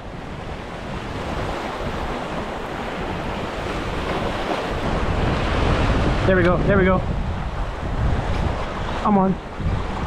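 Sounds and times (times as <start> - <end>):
wind buffeting microphone: 0.0 - 10.0
sea waves splashing on stone: 1.2 - 6.0.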